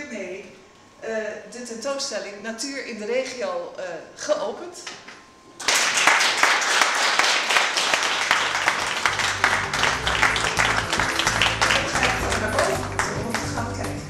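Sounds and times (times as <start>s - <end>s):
audience applauding: 5.6s - 13.7s
music: 8.4s - 14.0s.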